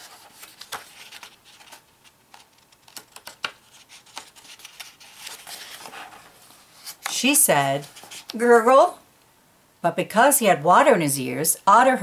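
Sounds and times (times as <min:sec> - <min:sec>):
book page turning: 0:00.0 - 0:08.4
paper rustling: 0:00.0 - 0:08.4.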